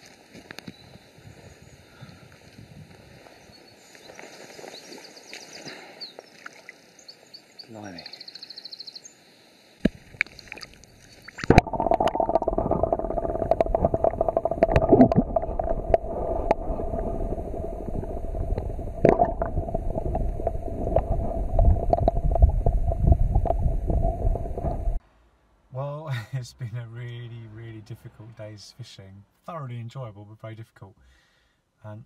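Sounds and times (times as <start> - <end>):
underwater river current rushing: 9.9 - 25.0
underwater clicks and knocks: 11.4 - 16.6, 18.0 - 25.0.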